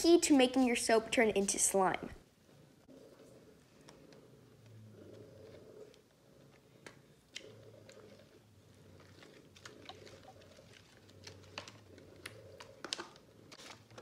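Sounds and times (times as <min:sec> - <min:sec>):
wet slime squishing: 0:03.8 - 0:14.0.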